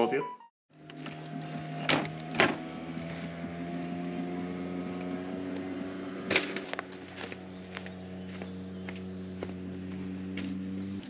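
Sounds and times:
motor running steadily: 0.7s - 11.0s.

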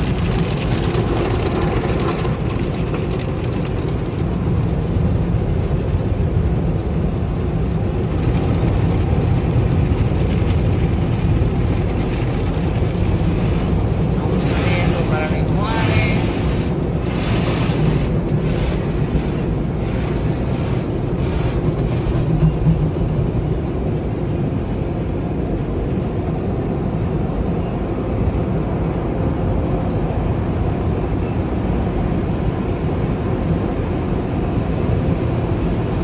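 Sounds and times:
car wash water spray: 13.1s - 22.2s.

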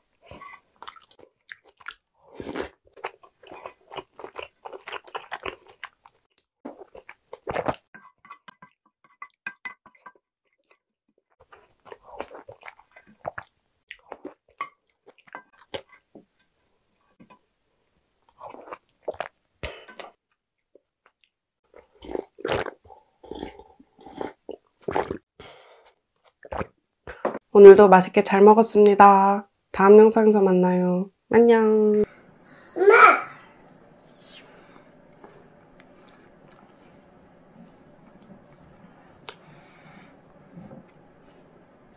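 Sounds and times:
wet chewing: 0.3s - 8.5s.

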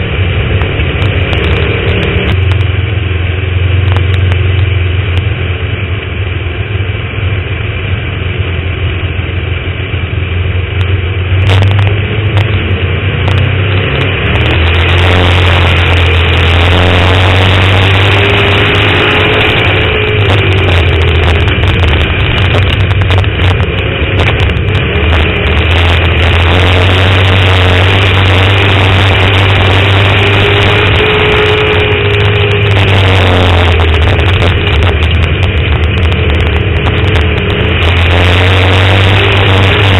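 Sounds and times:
race car engine: 0.0s - 39.9s.

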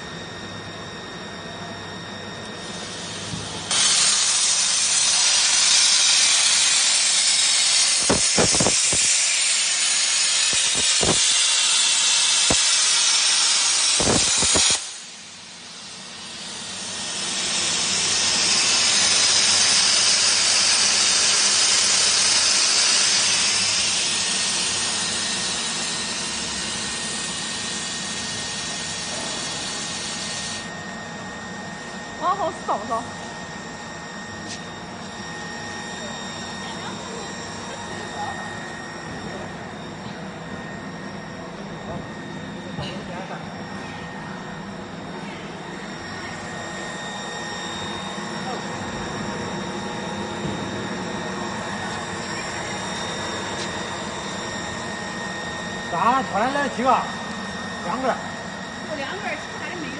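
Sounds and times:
plasma torch hissing: 2.6s - 30.7s.

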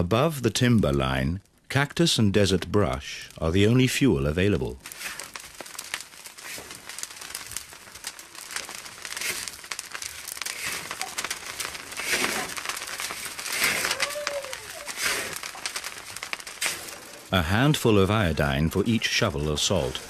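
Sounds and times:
salt crackling in a pan: 1.0s - 20.0s
scraping salt in a pan: 4.9s - 5.4s, 9.2s - 9.5s, 10.5s - 11.2s, 11.9s - 13.9s, 14.9s - 15.4s, 16.6s - 17.0s.

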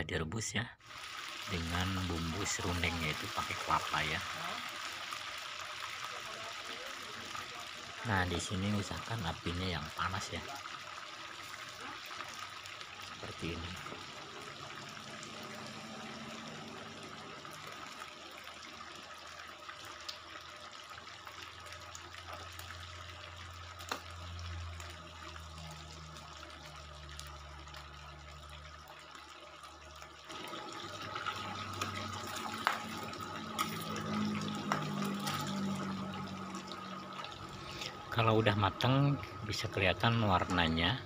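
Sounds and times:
chicken deep-frying in oil: 0.8s - 41.0s.

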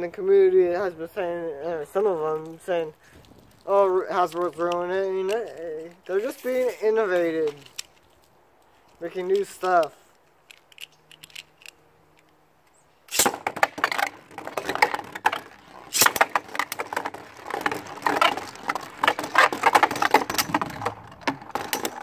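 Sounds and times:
spinning tops launched: 13.1s - 13.9s
spinning tops scraping and clacking: 13.1s - 22.0s.

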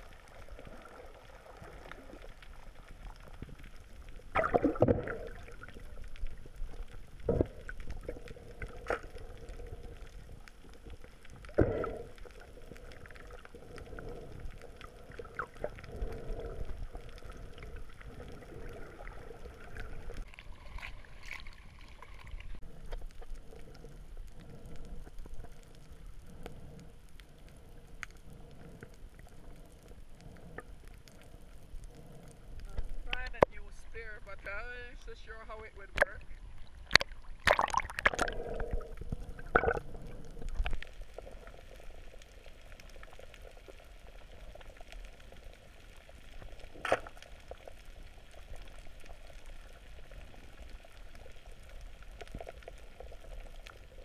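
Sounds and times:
muffled underwater gurgling: 4.3s - 20.3s, 27.5s - 54.0s.

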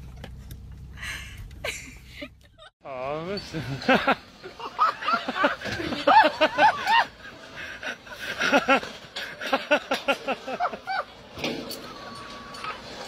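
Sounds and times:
person laughing: 1.6s - 2.7s, 3.5s - 11.1s.

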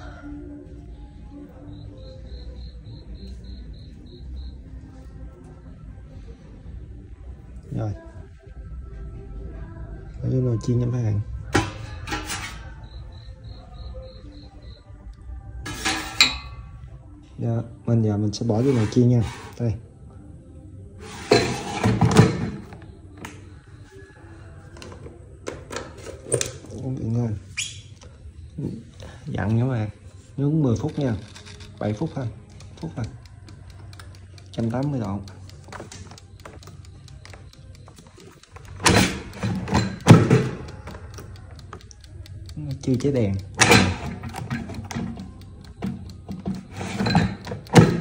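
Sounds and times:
drawer sliding with scrape: 18.5s - 19.7s, 21.0s - 22.6s
light clicks: 30.8s - 48.0s.

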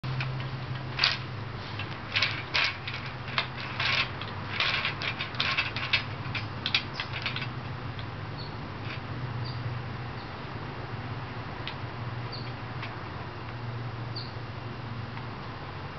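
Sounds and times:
wooden beads clacking: 0.2s - 8.1s.

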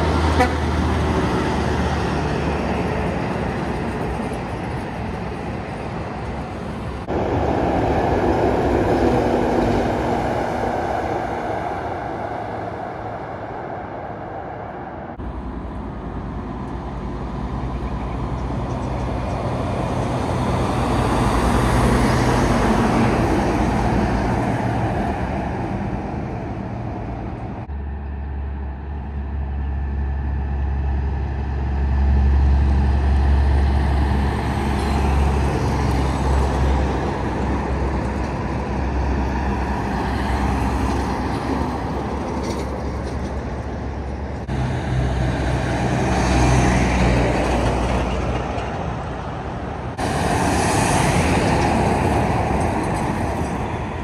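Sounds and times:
trucks driving by: 0.0s - 54.0s.

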